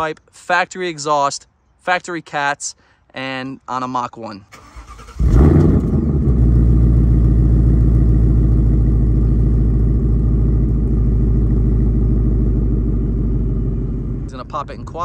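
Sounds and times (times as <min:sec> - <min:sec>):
car engine fast idle: 0:04.6 - 0:07.9.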